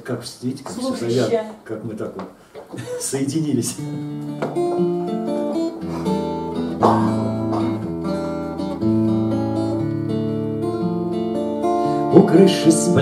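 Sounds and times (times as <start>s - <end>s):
acoustic guitar chords: 3.6s - 13.0s.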